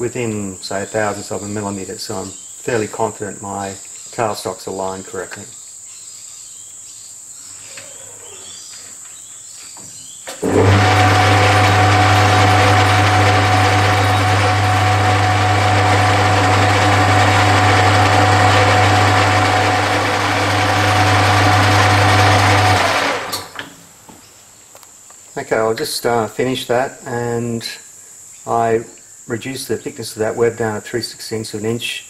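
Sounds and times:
metal lathe running: 10.4s - 23.5s.

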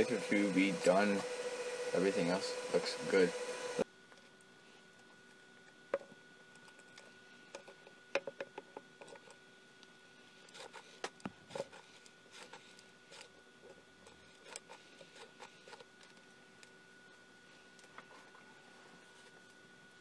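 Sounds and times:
faint steady whine: 0.0s - 20.0s.

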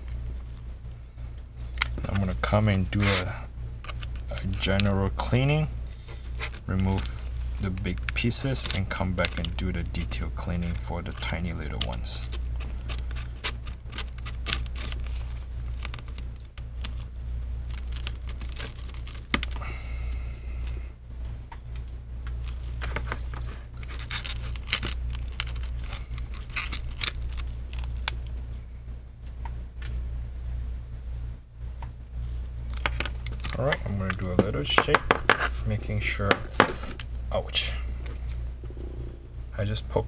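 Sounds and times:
low hum: 0.0s - 40.0s.

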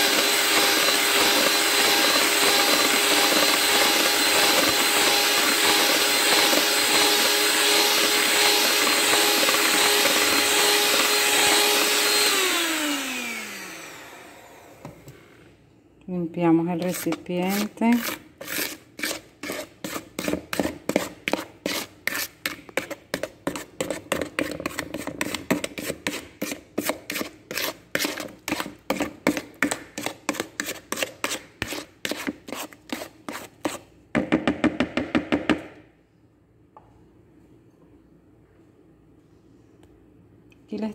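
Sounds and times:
wooden spoon beating batter in bowl: 0.0s - 12.3s, 16.7s - 35.6s.

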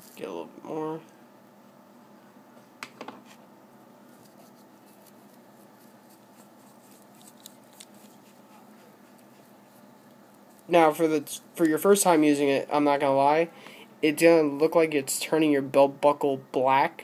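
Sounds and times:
low room hum: 0.0s - 17.0s
cloth rubbing on metal: 4.1s - 10.8s.

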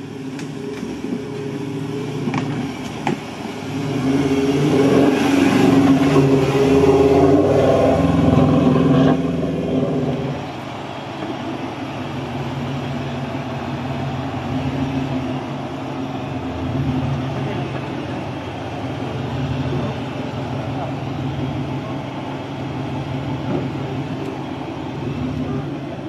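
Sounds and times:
engine revving: 0.4s - 10.5s.

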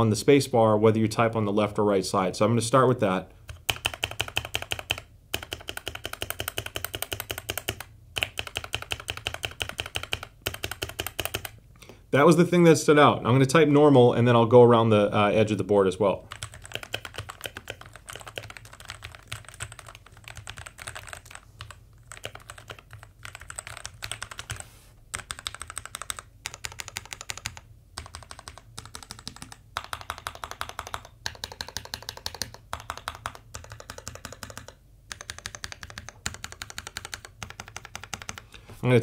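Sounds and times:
mechanical keyboard typing: 3.5s - 11.6s, 16.3s - 38.5s.

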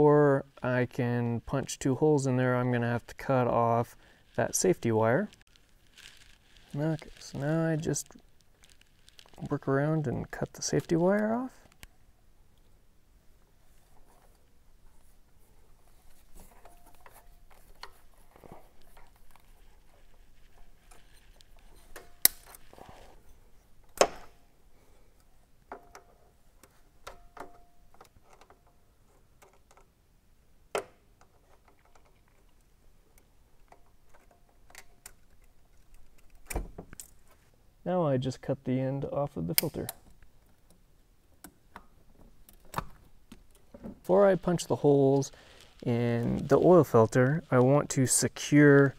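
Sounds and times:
handling noise: 13.4s - 24.4s.

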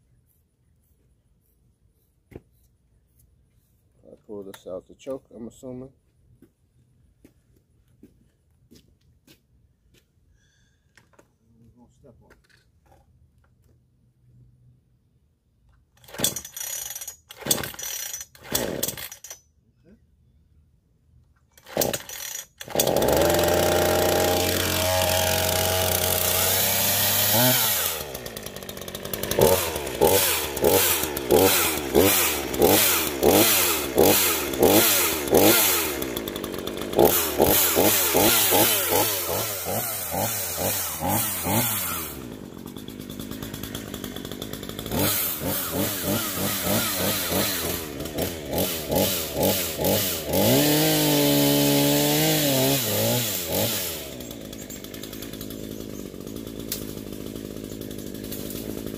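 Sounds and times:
chainsaw revving: 16.0s - 19.4s, 21.5s - 58.9s.

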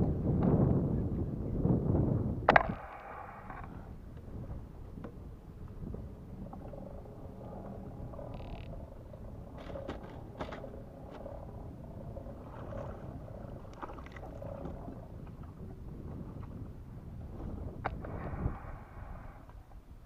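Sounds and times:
choppy water: 0.0s - 20.0s
wind rumbling on microphone: 0.0s - 20.0s.

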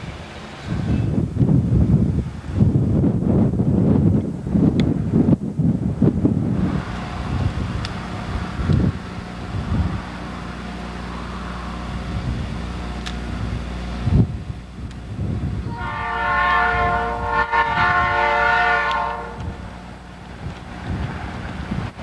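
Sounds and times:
train rumble: 0.0s - 22.0s
multi-tone train horn: 15.6s - 19.8s.

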